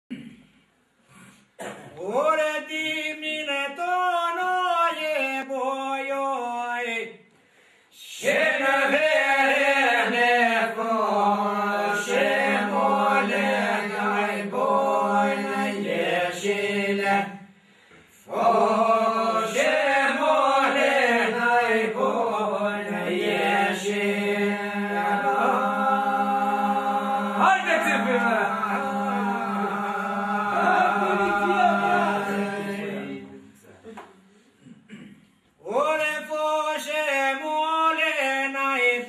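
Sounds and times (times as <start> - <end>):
men singing polyphony: 18.3 - 33.5.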